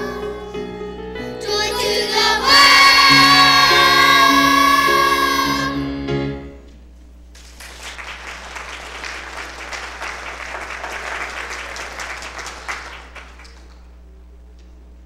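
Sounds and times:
children's choir singing: 0.0s - 5.9s
audience applauding: 7.4s - 14.0s.

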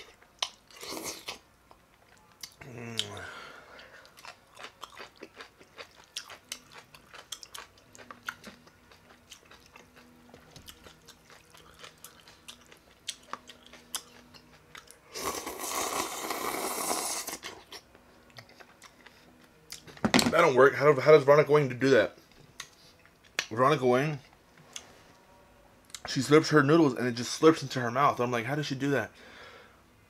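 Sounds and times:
close-up chewing: 3.8s - 19.8s
slurping noodles: 15.1s - 17.6s.

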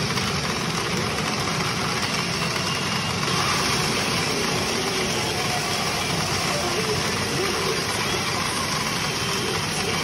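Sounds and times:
pachinko machines and balls clattering: 0.0s - 10.0s.

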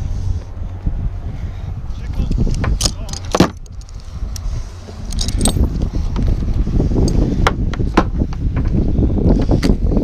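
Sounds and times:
low rumble: 0.0s - 10.0s
harness buckles clicking and jingling: 2.1s - 6.3s.

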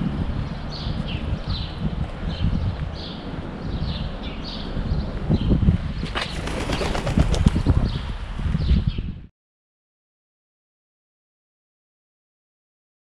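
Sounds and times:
steady low rumble: 0.0s - 6.0s
small birds chirping: 0.4s - 9.2s
pigeon wings flapping: 6.1s - 7.8s.

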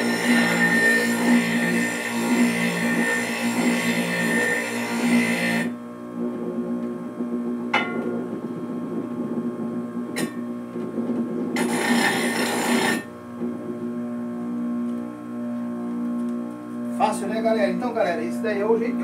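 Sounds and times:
bench grinder humming: 0.0s - 7.6s, 8.2s - 14.1s
gritty grinding: 11.6s - 13.1s.

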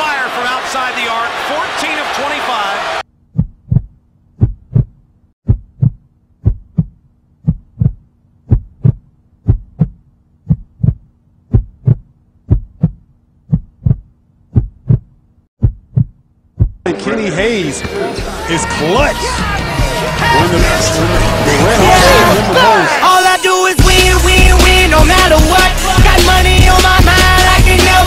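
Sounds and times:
heartbeat thumps: 3.3s - 16.8s.

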